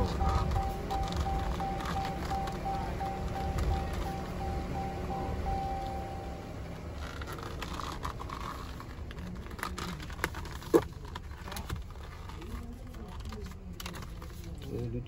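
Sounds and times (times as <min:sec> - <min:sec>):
leather cover rustling and clicking: 0:00.0 - 0:04.4, 0:07.0 - 0:14.5
low steady rumble: 0:00.0 - 0:14.6.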